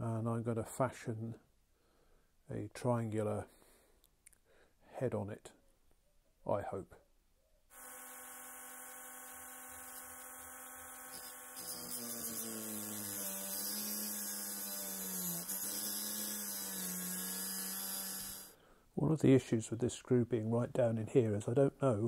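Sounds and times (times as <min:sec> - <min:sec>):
rotary tool grinding steel: 0:07.8 - 0:18.5.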